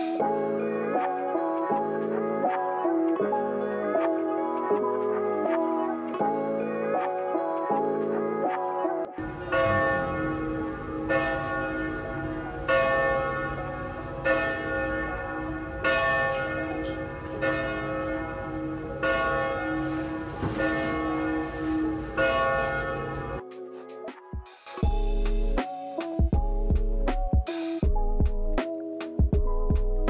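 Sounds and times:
church bell tolling: 9.2s - 23.4s.

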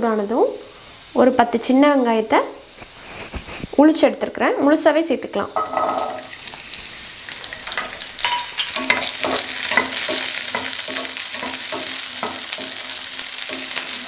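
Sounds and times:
onions sizzling in hot oil: 0.0s - 14.0s
spatula scraping and tapping pan: 5.6s - 14.0s.

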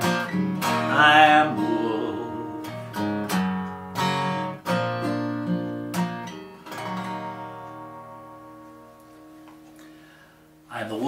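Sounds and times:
acoustic guitar strumming chords: 0.0s - 11.0s.

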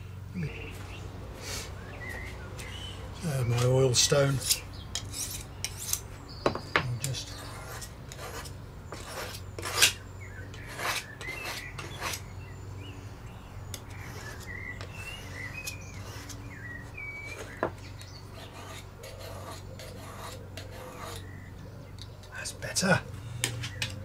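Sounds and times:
birds chirping: 0.0s - 24.0s
knife scraping on sharpening stone: 4.4s - 6.0s, 18.4s - 21.2s.

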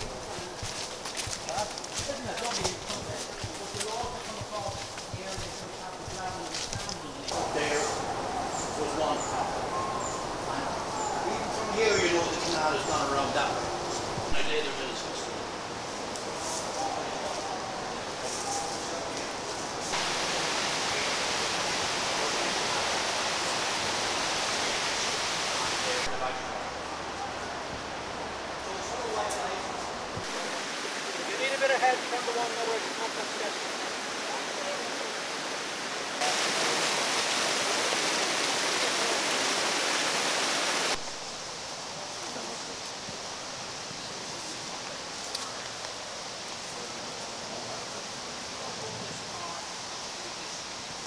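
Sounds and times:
stream water rushing: 0.0s - 51.0s
woodland ambience: 0.0s - 51.0s
water rushing over rocks: 18.9s - 42.8s.

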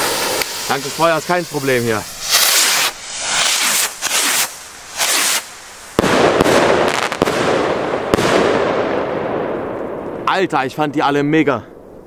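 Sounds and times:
firework hiss: 0.0s - 9.6s
firework bangs: 0.0s - 10.4s
firework crackling: 0.0s - 10.8s.

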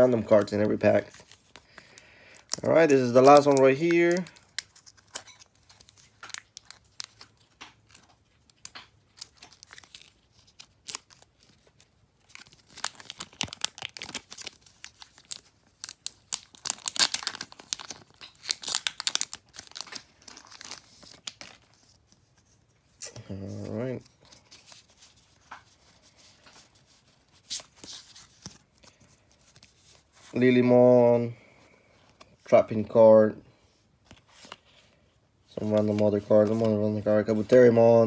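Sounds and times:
foil wrapper tearing and crackling: 0.2s - 21.8s.

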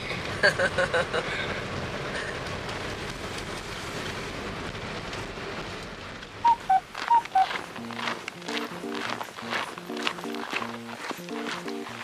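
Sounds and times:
road and engine noise in van: 0.0s - 12.0s
music: 7.7s - 12.0s.

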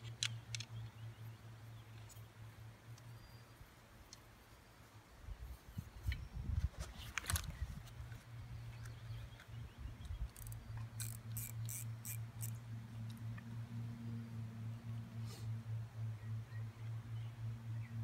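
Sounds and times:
fishing reel clicks and knocks: 10.1s - 13.2s.

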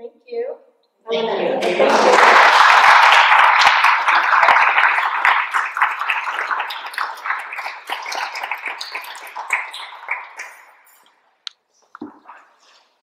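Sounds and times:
audience applauding: 1.6s - 11.0s.

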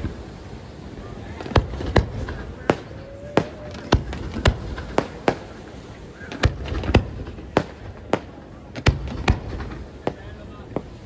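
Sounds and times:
firework shells bursting: 1.4s - 11.0s.

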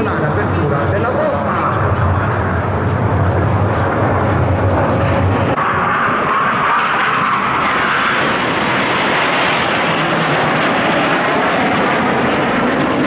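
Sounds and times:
jet flying by roaring: 0.0s - 13.0s.

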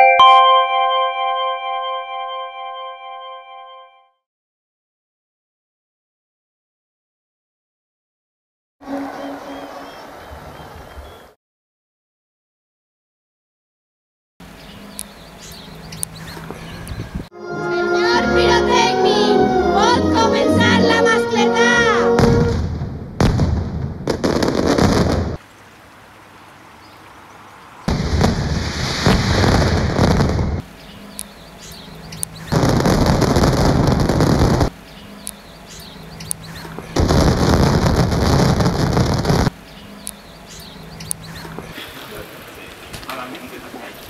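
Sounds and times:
music: 17.3s - 22.5s
firecracker barrages: 22.1s - 25.4s, 27.9s - 30.6s, 32.5s - 34.7s, 37.0s - 39.5s.

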